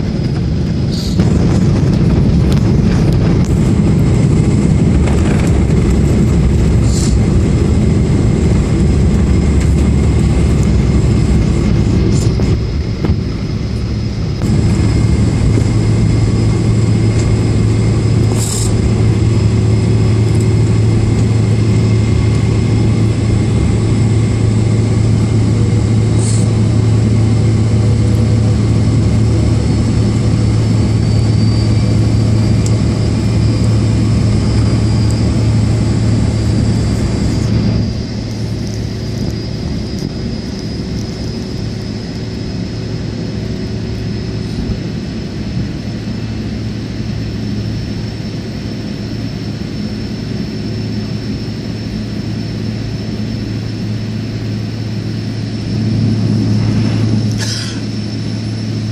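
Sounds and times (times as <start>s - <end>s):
airplane cabin engine drone: 0.0s - 58.9s.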